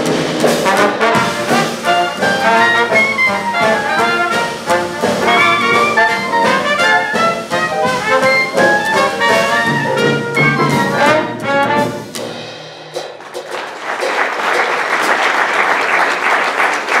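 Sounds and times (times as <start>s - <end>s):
jazz band playing: 0.0s - 15.3s
audience applause: 13.2s - 17.0s.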